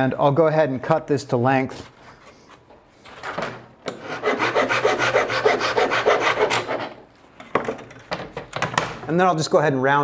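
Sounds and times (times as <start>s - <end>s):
handsaw cutting wood: 4.0s - 7.0s.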